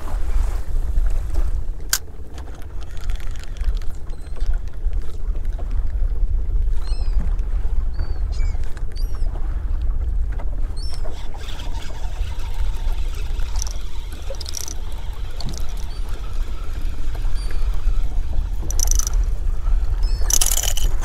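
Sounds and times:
choppy water around boat: 0.0s - 21.0s
seabirds calling: 10.8s - 21.0s.

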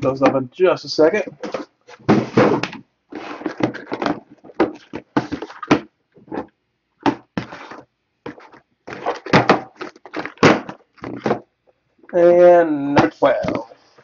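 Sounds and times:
cardboard boxes knocking on table: 1.4s - 2.8s, 3.4s - 5.9s, 7.0s - 7.6s, 8.3s - 11.5s.

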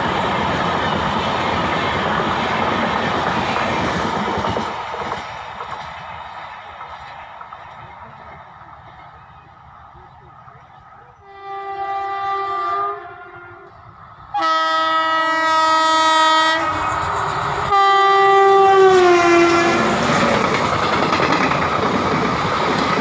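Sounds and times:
train wheels rumbling on rails: 0.0s - 12.9s, 13.6s - 23.0s
train horn blasts: 11.2s - 20.1s.

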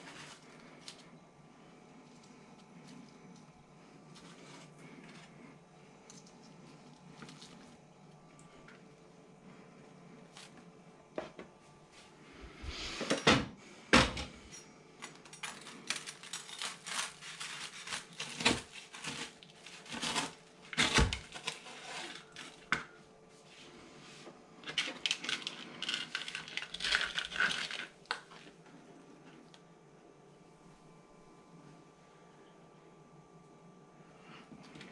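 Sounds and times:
toast crunching: 15.7s - 22.7s, 24.6s - 29.4s.

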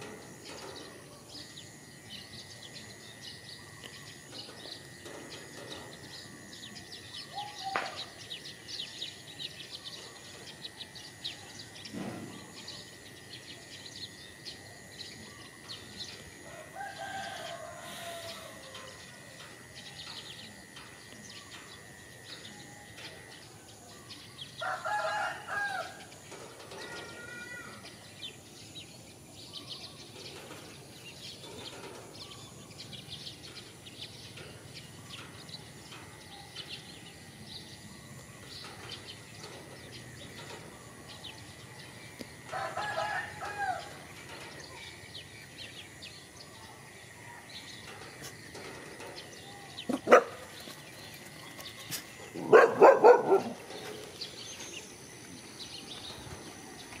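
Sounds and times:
rooster crowing: 16.4s - 19.5s, 24.6s - 26.1s, 42.5s - 44.0s.

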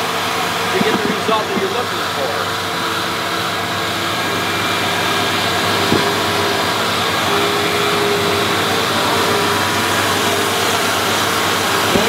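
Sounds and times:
angle grinder grinding concrete: 0.4s - 3.2s, 3.8s - 12.0s
short knock: 5.9s - 6.3s.

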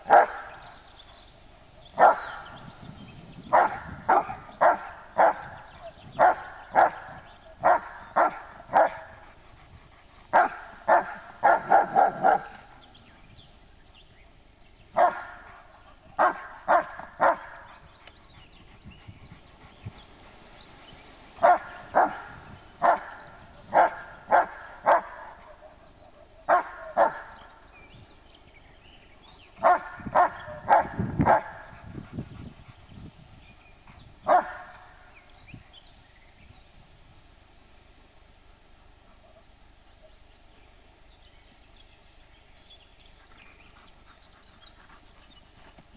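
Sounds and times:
dog barking: 0.1s - 0.6s, 2.0s - 2.6s, 3.5s - 5.6s, 6.2s - 9.1s, 10.4s - 12.6s, 15.0s - 15.6s, 16.2s - 17.5s, 21.4s - 27.4s, 29.6s - 31.6s, 34.3s - 34.8s.

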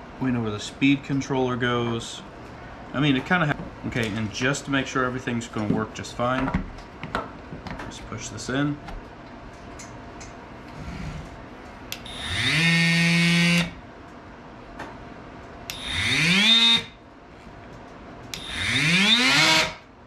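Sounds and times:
multitool motor whine: 12.0s - 13.8s, 15.7s - 17.0s, 18.4s - 19.8s.

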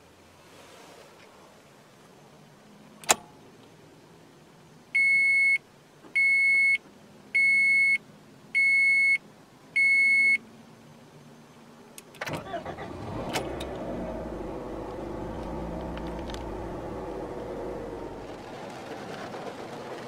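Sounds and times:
sharp click: 3.0s - 3.3s.

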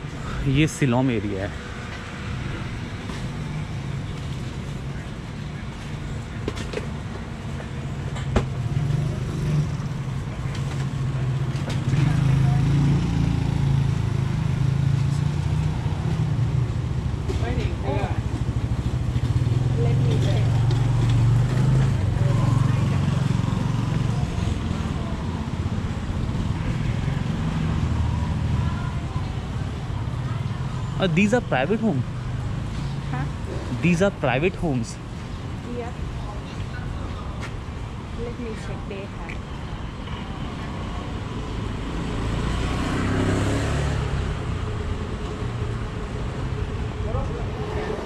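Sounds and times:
motorbike traffic rumble: 0.0s - 48.0s
motor scooter passing by: 11.8s - 16.4s, 40.9s - 44.7s.

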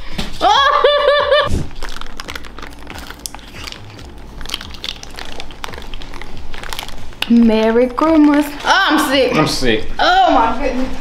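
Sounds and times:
aluminium foil crinkling: 1.5s - 9.1s.

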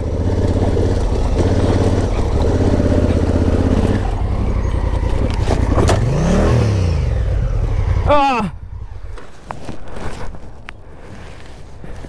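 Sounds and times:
motorcycle engine chugging: 0.0s - 9.2s.

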